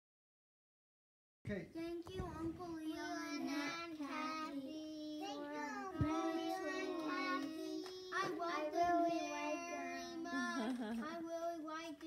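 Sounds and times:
children singing: 0:02.7 - 0:11.0.

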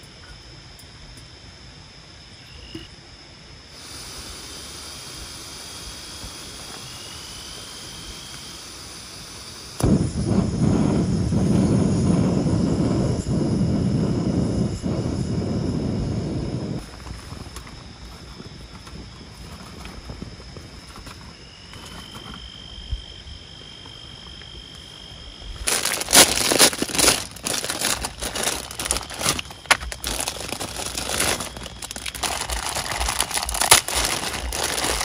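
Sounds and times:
insect drone: 0:00.0 - 0:35.0
wind buffeting microphone: 0:09.8 - 0:23.7.

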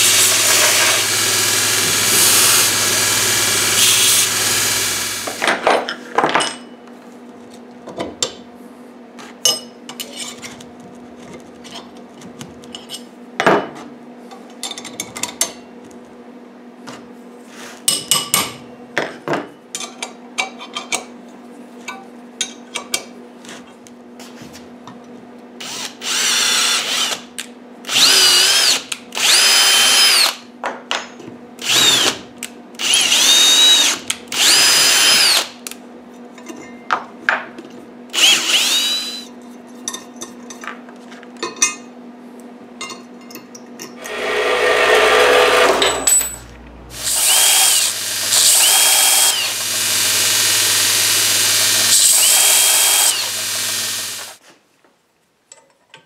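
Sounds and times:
cordless drill bursts: 0:00.0 - 0:05.4, 0:25.6 - 0:27.2, 0:27.9 - 0:30.4, 0:31.6 - 0:32.2, 0:32.8 - 0:35.6, 0:38.1 - 0:39.3, 0:46.9 - 0:54.4.

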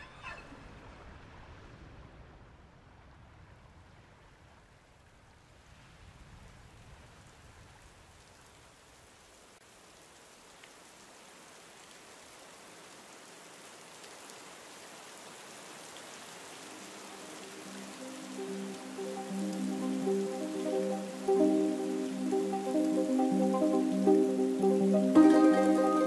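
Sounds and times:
steady rain falling: 0:00.0 - 0:26.0
music: 0:17.2 - 0:26.0.

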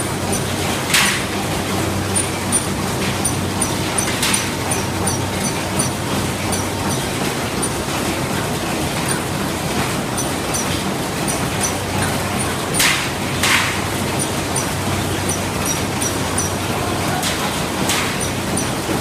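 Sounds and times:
machine humming: 0:00.0 - 0:19.0
louder machine click: 0:02.1 - 0:07.8.

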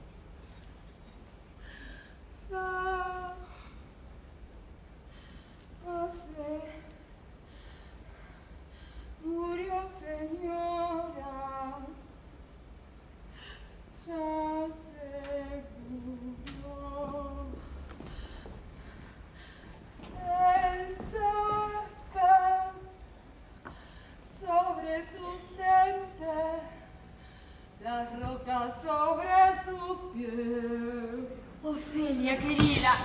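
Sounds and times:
woman singing unaccompanied: 0:02.4 - 0:03.5, 0:05.8 - 0:07.0, 0:09.2 - 0:12.1, 0:14.0 - 0:17.8, 0:20.1 - 0:23.1, 0:24.3 - 0:27.0, 0:27.8 - 0:33.0.

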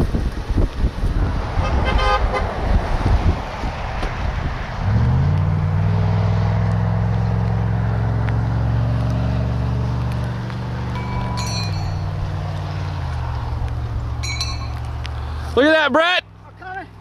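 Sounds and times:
wind rumbling on microphone: 0:00.0 - 0:15.6
vehicle engine running: 0:05.2 - 0:17.0.

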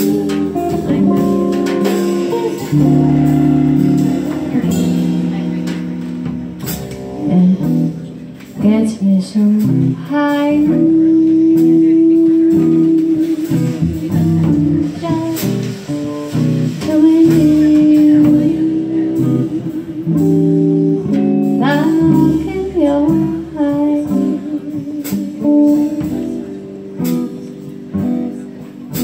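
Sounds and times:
drum kit with cymbals: 0:00.0 - 0:29.0
electric guitar: 0:00.0 - 0:29.0
upright bass: 0:00.0 - 0:29.0
woman singing: 0:07.2 - 0:07.9, 0:08.6 - 0:15.8, 0:16.8 - 0:20.9, 0:21.5 - 0:26.2.

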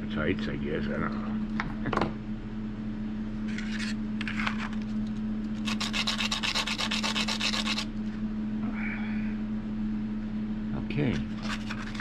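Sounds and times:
stick rubbed on sandpaper: 0:05.6 - 0:07.9, 0:11.3 - 0:12.0.

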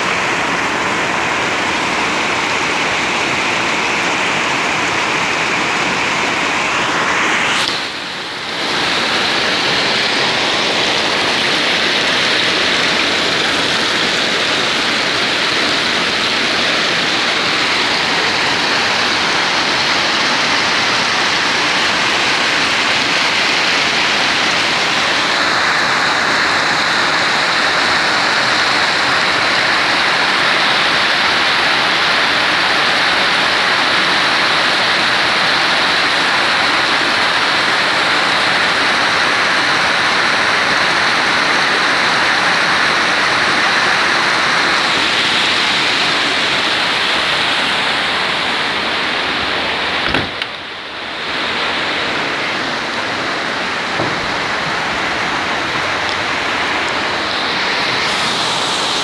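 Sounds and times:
heavy rain pouring: 0:00.0 - 0:59.0
hiss of water: 0:00.0 - 0:59.0.

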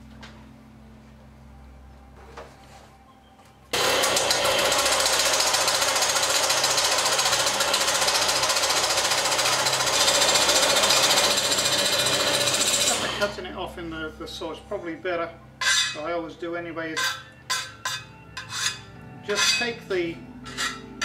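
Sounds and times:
bandsaw cutting metal: 0:03.8 - 0:13.4.

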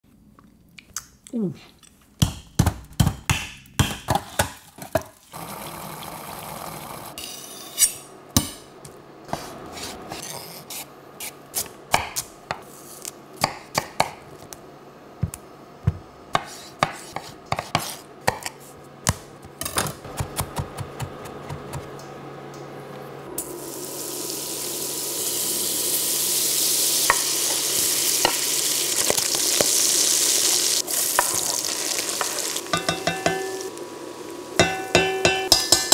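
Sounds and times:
knife chopping on wooden board: 0:11.9 - 0:12.6, 0:13.4 - 0:14.2, 0:15.2 - 0:18.5, 0:20.0 - 0:21.9
bacon and onion sizzling: 0:23.4 - 0:35.9.

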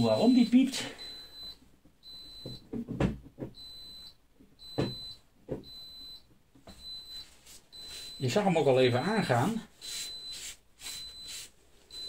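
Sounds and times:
high single-tone beep: 0:00.1 - 0:02.6, 0:03.6 - 0:12.0
clothing rustling against microphone: 0:06.7 - 0:08.4, 0:09.3 - 0:12.0.

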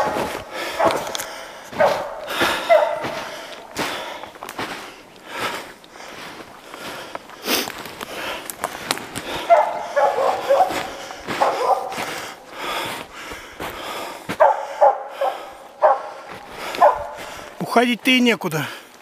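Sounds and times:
dog barking: 0:00.0 - 0:03.8, 0:09.4 - 0:12.4, 0:14.3 - 0:17.3
footsteps crunching in snow: 0:00.0 - 0:18.4.

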